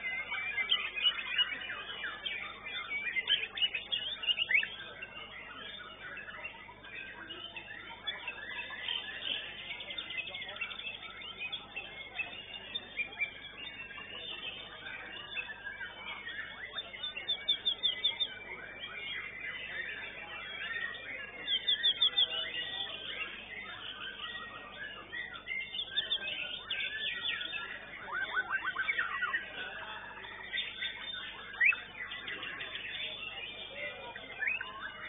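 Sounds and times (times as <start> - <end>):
other songbirds singing: 0.0 - 35.0
songbird warbling: 7.4 - 35.0.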